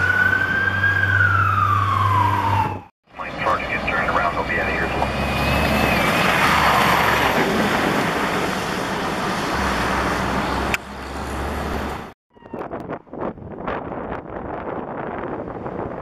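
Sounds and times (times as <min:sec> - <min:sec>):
faint siren wail: 0:00.0 - 0:07.1, 0:12.3 - 0:13.0
fire engine hum: 0:00.0 - 0:16.0
tyre noise on slushy road: 0:04.5 - 0:12.1.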